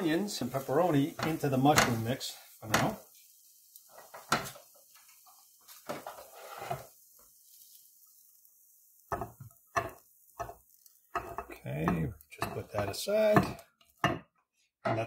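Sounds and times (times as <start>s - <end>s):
spatula scraping frying pan: 0.3s - 7.8s, 9.0s - 14.3s
spatula knocking against pan: 9.1s - 15.0s.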